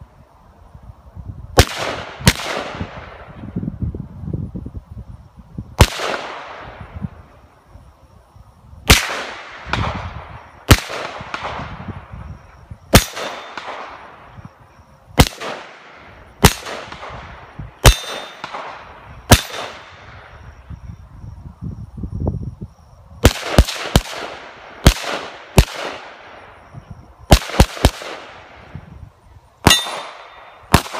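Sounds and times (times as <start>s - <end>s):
gunshots echoing: 1.6s - 3.2s, 5.8s - 6.9s, 8.9s - 11.9s, 12.9s - 14.2s, 15.2s - 20.2s, 23.2s - 26.4s, 27.3s - 28.6s, 29.6s - 30.9s.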